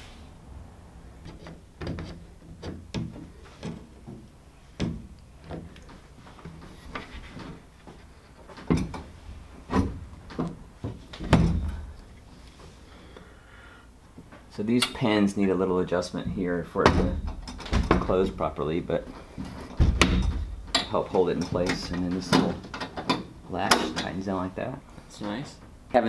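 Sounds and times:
metal frame knocks and clunks: 0:01.2 - 0:12.0, 0:16.2 - 0:24.2.

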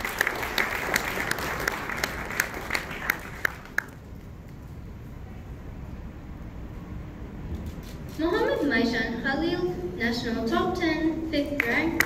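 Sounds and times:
audience applause: 0:00.0 - 0:04.0.

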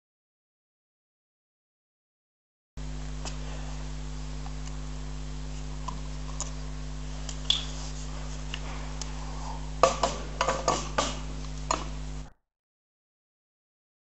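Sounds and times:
steady low hum: 0:02.8 - 0:12.4.

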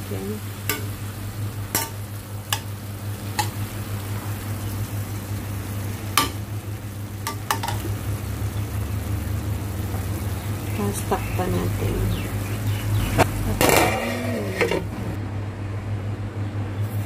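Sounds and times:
chicken sizzling in a frying pan: 0:00.0 - 0:15.0
steady low hum: 0:00.0 - 0:17.0.

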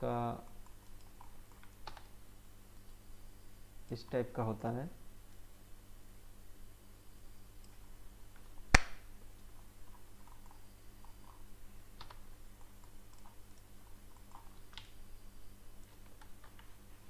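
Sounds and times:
low steady hum: 0:00.0 - 0:17.0
keyboard and mouse clicks: 0:00.6 - 0:02.1, 0:12.0 - 0:15.0, 0:15.8 - 0:16.7.

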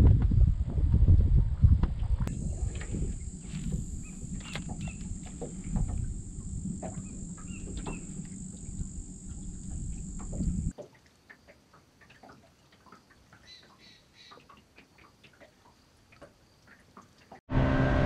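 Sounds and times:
low rumble: 0:00.0 - 0:10.7
bird chirps: 0:02.3 - 0:10.7
insects droning: 0:02.3 - 0:10.7.

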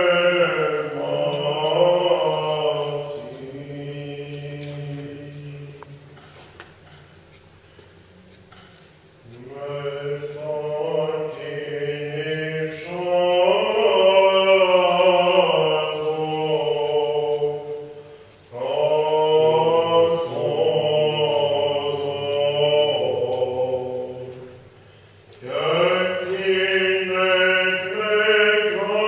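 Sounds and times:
person chanting melismatic phrases: 0:00.0 - 0:05.9, 0:09.2 - 0:24.7.

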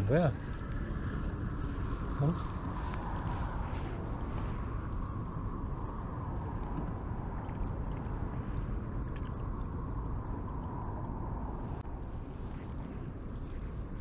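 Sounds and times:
water lapping: 0:00.0 - 0:05.0, 0:07.4 - 0:09.7
wind on microphone: 0:00.0 - 0:14.0.

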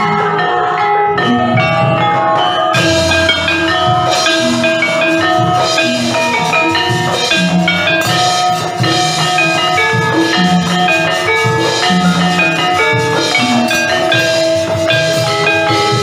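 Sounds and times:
bronze metallophone notes ringing: 0:00.0 - 0:16.0
hand drum: 0:00.0 - 0:16.0.

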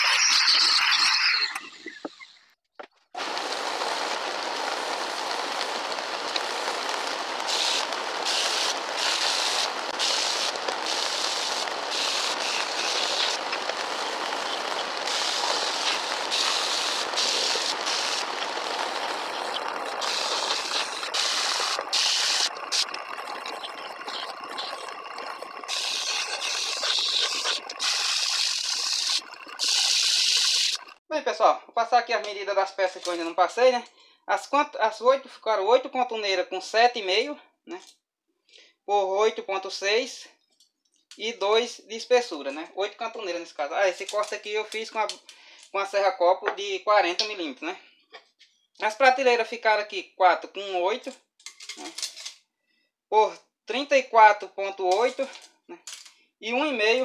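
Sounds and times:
belt sander hissing: 0:03.2 - 0:30.8.

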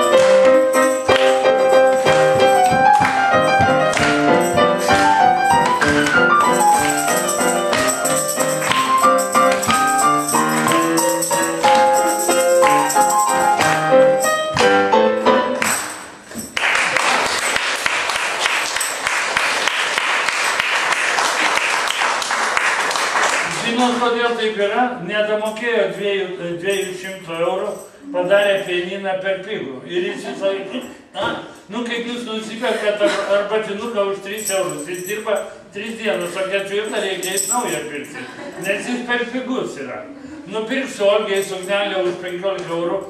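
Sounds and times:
lively keyboard tune: 0:00.0 - 0:16.1
tambourine jingling: 0:00.0 - 0:21.8, 0:25.4 - 0:29.0, 0:33.8 - 0:39.4, 0:40.6 - 0:43.0
applause: 0:03.9 - 0:04.3, 0:08.6 - 0:09.0, 0:15.6 - 0:24.0.

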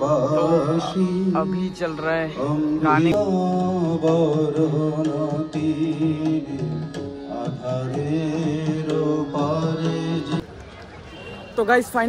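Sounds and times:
amplified song with drums: 0:02.8 - 0:10.4.

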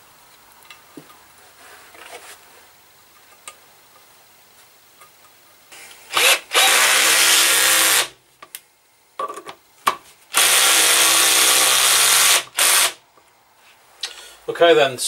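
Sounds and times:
cordless drill driving screws: 0:06.1 - 0:08.1, 0:10.3 - 0:13.0.

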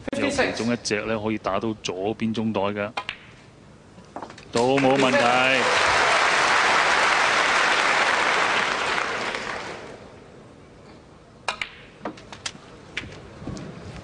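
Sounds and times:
audience applause: 0:04.6 - 0:10.0.

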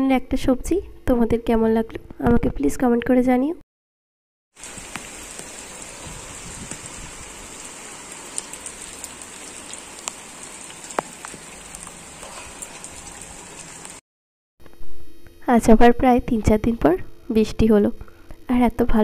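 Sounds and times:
rain falling on a rooftop: 0:04.6 - 0:14.0
water drops tapping: 0:08.3 - 0:13.9.

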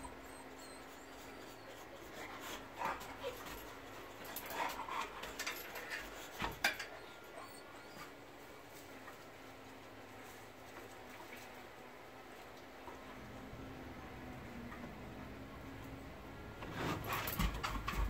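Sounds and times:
dog whimpering: 0:00.0 - 0:08.2.

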